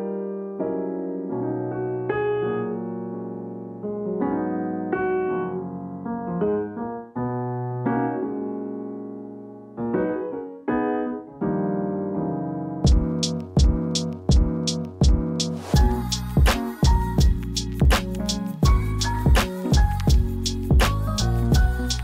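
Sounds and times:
gentle piano music: 0.0s - 22.0s.

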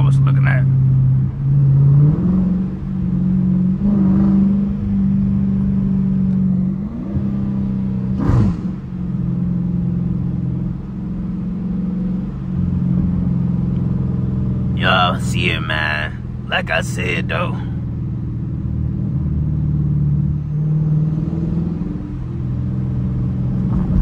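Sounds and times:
car exhaust drone: 0.0s - 24.0s.

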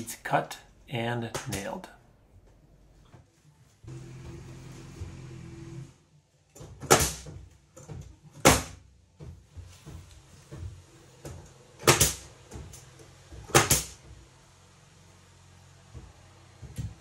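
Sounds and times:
nail gun firing: 6.8s - 7.3s, 11.8s - 12.2s, 13.5s - 14.0s.

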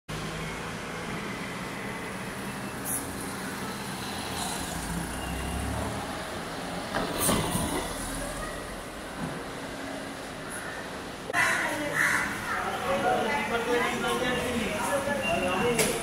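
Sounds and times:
cars driving past: 0.1s - 11.3s.

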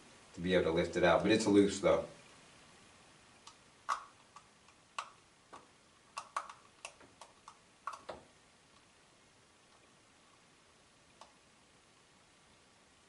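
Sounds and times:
screwdriver clicking and tapping: 3.9s - 8.2s.

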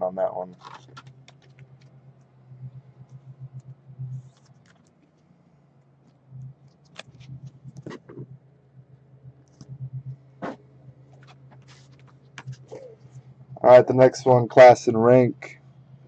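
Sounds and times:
low wavering hum: 0.0s - 16.0s
trading cards clicking and rustling: 0.5s - 1.9s, 11.1s - 12.8s.

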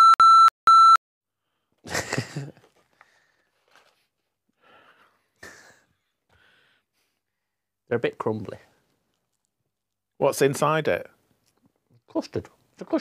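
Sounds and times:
censor bleep: 0.0s - 1.0s.

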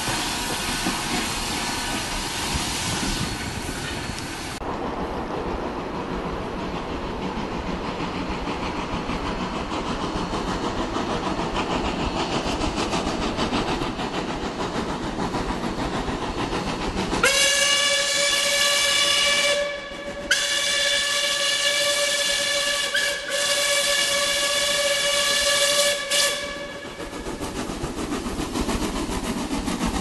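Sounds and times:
steam locomotive chuffing: 0.0s - 4.7s, 5.4s - 30.0s
steam whistle blasts: 17.2s - 27.2s.

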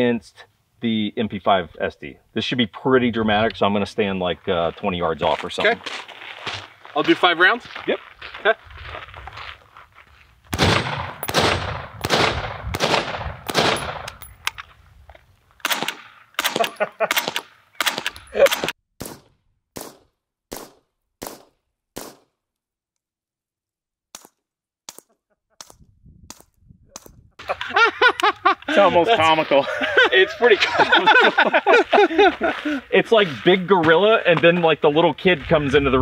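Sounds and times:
suppressed rifle shots: 10.5s - 14.2s, 15.6s - 22.3s.

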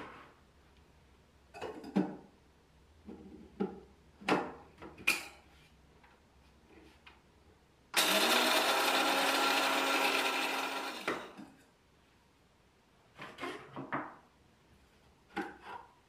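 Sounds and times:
espresso machine pump buzzing: 8.0s - 11.2s.

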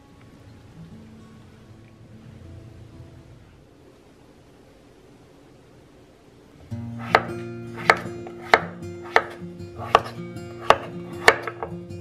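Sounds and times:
knife chopping on wooden board: 7.0s - 11.8s.

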